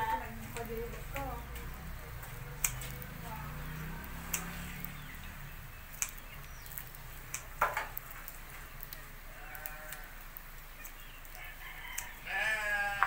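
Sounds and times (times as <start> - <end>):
scissors snipping wool: 0.6 - 5.1, 5.9 - 8.1.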